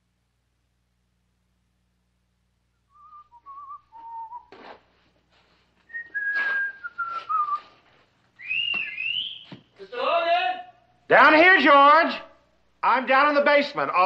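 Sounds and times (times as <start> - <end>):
man whistling slow tune: 2.9 - 4.5, 5.9 - 7.8, 8.4 - 9.5
short scraping noises: 4.5 - 8.1.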